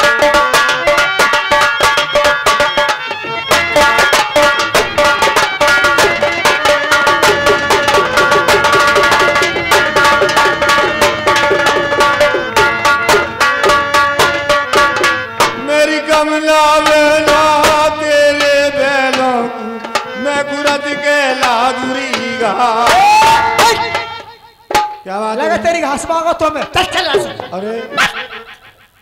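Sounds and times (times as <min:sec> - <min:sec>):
hand drum beating: 0:00.0 - 0:15.9, 0:21.4 - 0:28.2
wavering folk melody: 0:00.0 - 0:29.0.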